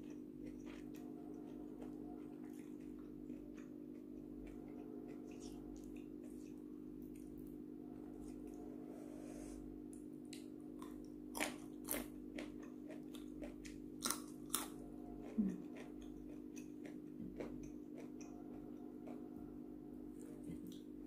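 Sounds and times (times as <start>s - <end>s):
soft chewing: 0.0s - 21.0s
steady low hum: 0.0s - 21.0s
crunching bean bites: 10.3s - 14.8s.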